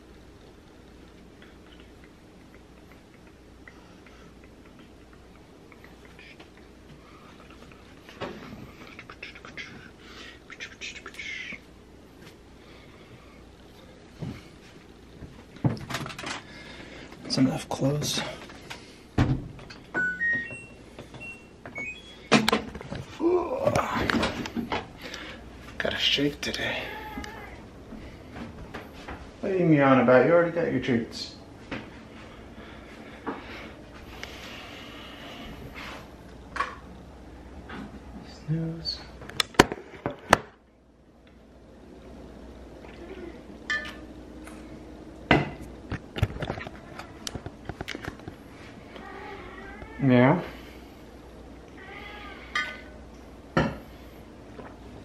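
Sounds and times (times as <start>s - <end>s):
washing machine button beeps: 20.0s - 22.4s.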